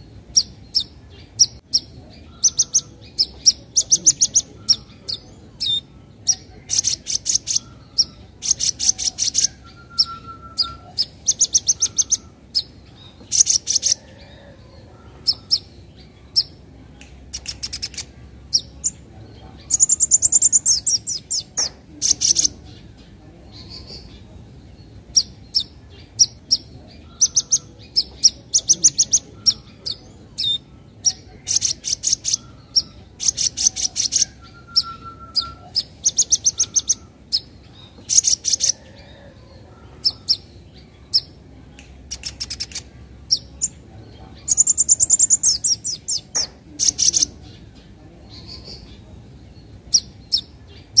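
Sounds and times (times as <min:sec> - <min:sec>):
bird chattering scratchy chirps: 0:00.3 - 0:14.1, 0:17.2 - 0:19.0, 0:19.6 - 0:22.6, 0:25.0 - 0:38.8, 0:42.0 - 0:43.8, 0:44.4 - 0:47.4.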